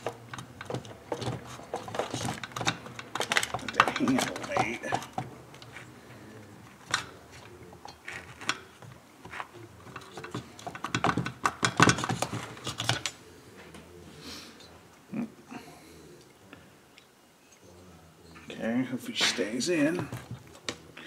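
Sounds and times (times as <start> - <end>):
metal parts clicking and knocking: 0.0 - 5.7, 9.3 - 13.2.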